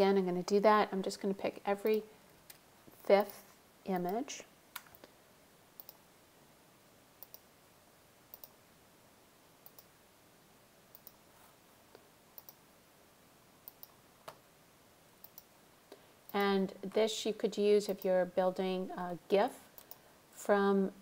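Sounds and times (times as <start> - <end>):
computer mouse clicking: 5.8 - 6.0, 7.2 - 7.5, 8.3 - 8.6, 9.6 - 9.9, 10.9 - 11.2, 12.4 - 12.6, 13.7 - 14.4, 15.2 - 15.5, 19.8 - 20.0.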